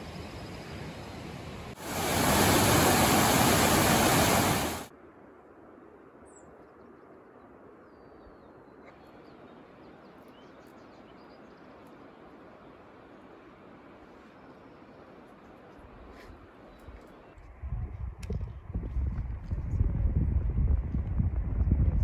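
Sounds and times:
creek rushing over boulders: 1.7s - 4.9s.

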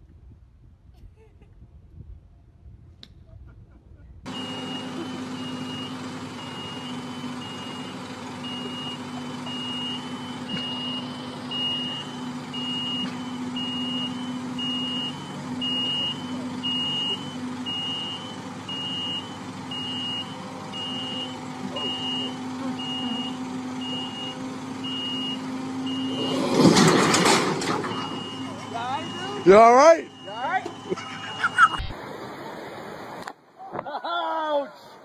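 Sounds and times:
vehicle reversing alarm beeping: 4.3s - 32.0s.

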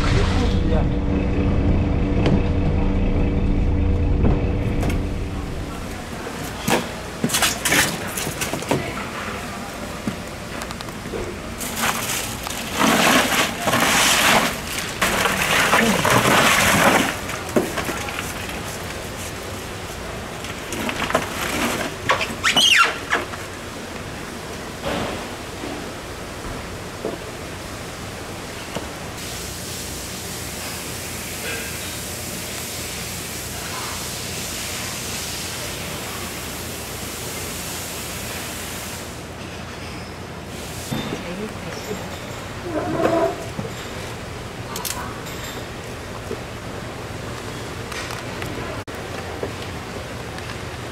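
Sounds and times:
crushed ice crunching and rattling: 11.6s - 19.4s, 20.4s - 22.7s.

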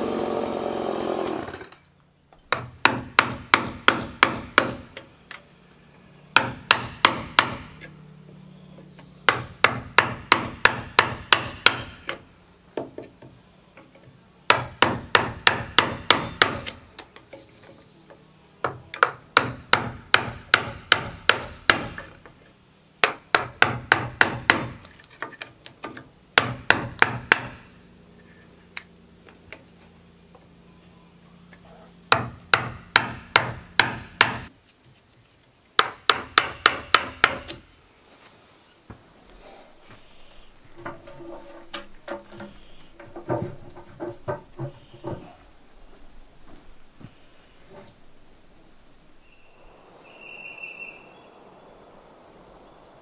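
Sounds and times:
chisel struck into timber: 2.5s - 5.0s, 6.4s - 7.9s, 9.3s - 12.2s, 14.5s - 16.8s, 18.6s - 22.2s, 23.0s - 24.8s, 25.8s - 27.6s, 32.1s - 34.5s, 35.8s - 37.6s, 40.7s - 45.4s.

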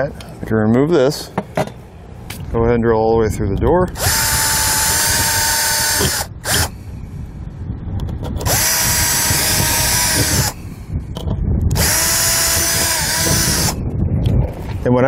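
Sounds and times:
cordless drill whining: 4.0s - 6.8s, 8.4s - 10.6s, 11.7s - 13.8s.

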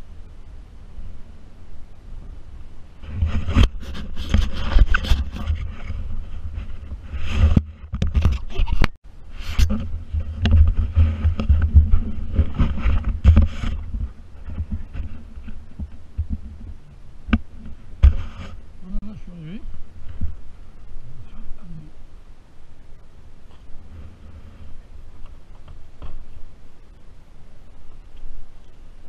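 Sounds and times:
fabric and gear rubbing: 3.0s - 8.7s, 9.4s - 15.6s
sharp knocks and thuds: 9.6s - 18.6s, 25.2s - 26.4s.

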